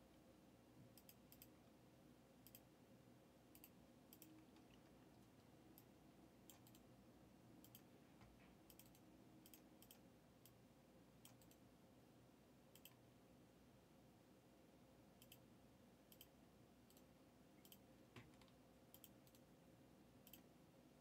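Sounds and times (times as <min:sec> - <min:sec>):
computer mouse clicks: 0:00.8 - 0:01.6, 0:02.4 - 0:02.7, 0:03.5 - 0:06.9, 0:07.6 - 0:10.6, 0:11.2 - 0:11.6, 0:12.7 - 0:13.1, 0:15.2 - 0:15.5, 0:16.1 - 0:19.5, 0:20.2 - 0:20.5.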